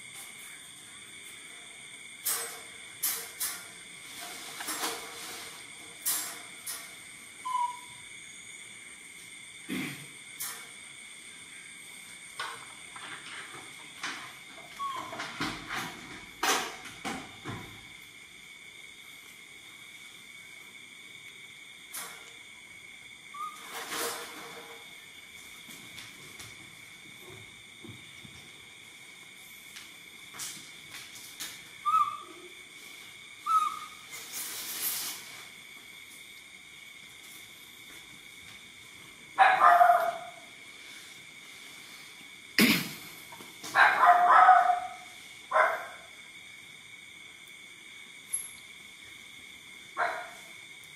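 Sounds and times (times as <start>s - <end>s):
soft hiss: 17.8s - 39.4s, 40.1s - 43.8s.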